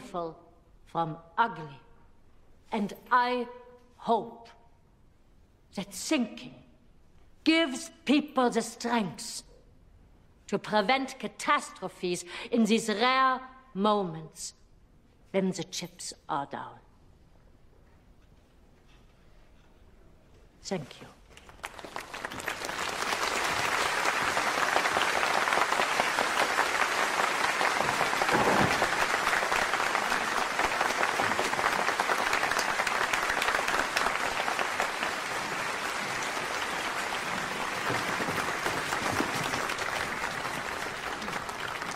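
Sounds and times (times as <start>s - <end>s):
large audience applauding: 21.3s - 41.9s.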